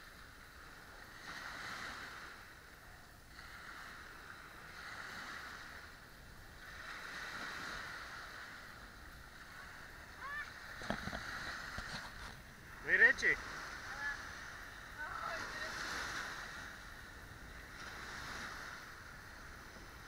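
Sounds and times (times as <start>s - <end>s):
water sloshing: 6.5s - 20.0s.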